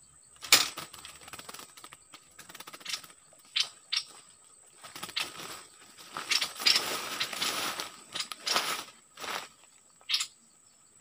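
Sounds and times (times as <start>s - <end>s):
rustling in dry leaves: 4.7s - 9.8s.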